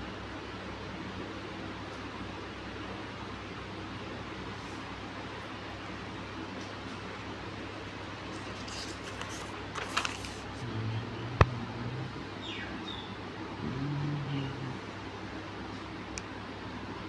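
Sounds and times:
faint low hum: 0.0 - 17.0
handling rustling: 8.3 - 10.6.

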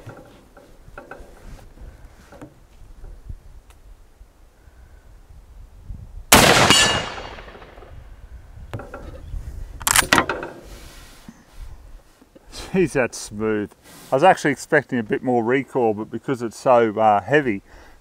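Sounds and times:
rifle shot echoing: 6.3 - 8.0
rifle action metallic clacks: 9.8 - 10.5.

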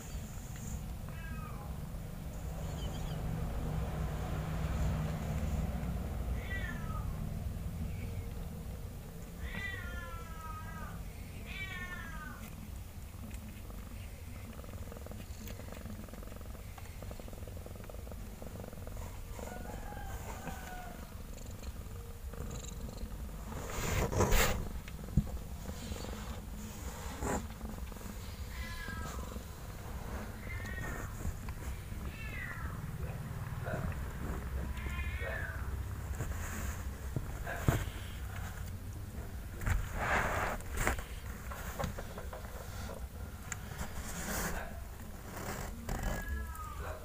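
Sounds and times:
low steady purring: 0.0 - 47.0
low steady rumble: 0.0 - 47.0
kittens mewing: 27.1 - 36.2, 43.8 - 47.0
kitten mewing: 45.7 - 47.0.

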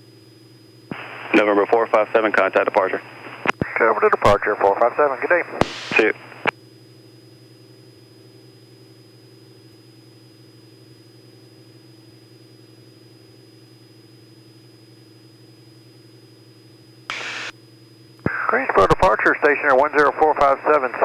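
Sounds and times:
thin high whine: 0.9 - 6.5, 17.1 - 17.6.

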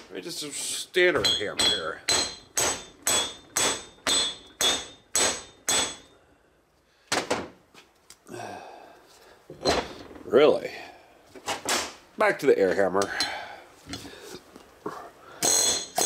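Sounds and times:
hammer striking steel: 1.1 - 6.2, 15.4 - 16.0.

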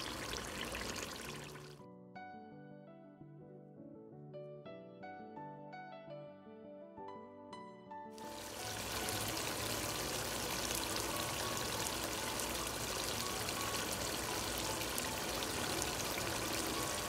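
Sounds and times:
curry sizzling and crackling in oil: 0.0 - 1.8, 8.2 - 17.0.

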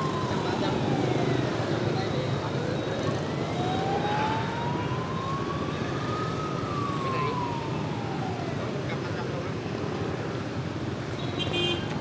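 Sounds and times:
street traffic: 0.0 - 12.0
siren wailing: 3.2 - 8.8.

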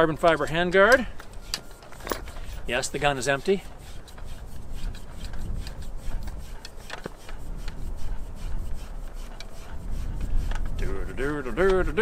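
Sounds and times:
metal threads rubbing: 0.0 - 12.0.

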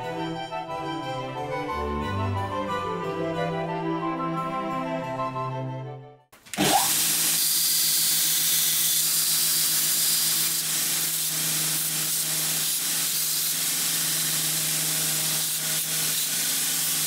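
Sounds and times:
belt grinder grinding metal: 6.5 - 17.0
electric motor humming: 6.6 - 17.0.

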